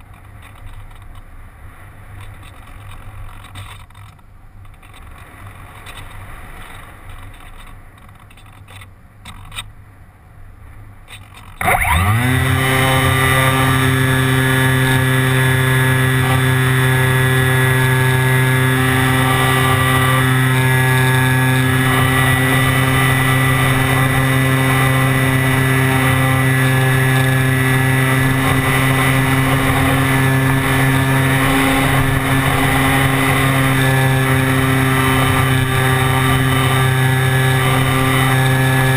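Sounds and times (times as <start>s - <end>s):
electric motor whine: 11.6s - 38.9s.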